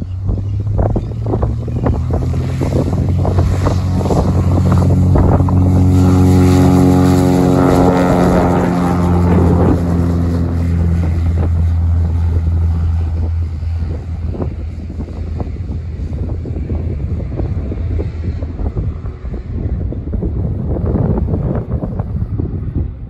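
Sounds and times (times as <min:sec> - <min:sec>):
propeller plane engine droning: 0:00.0 - 0:23.0
wind buffeting microphone: 0:00.0 - 0:23.0.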